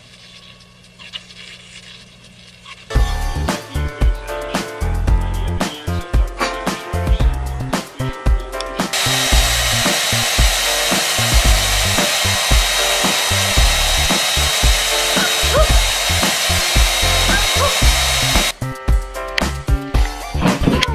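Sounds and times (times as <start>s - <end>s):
background music with beat: 2.9s - 20.9s
hair dryer hiss and whine: 8.9s - 18.6s.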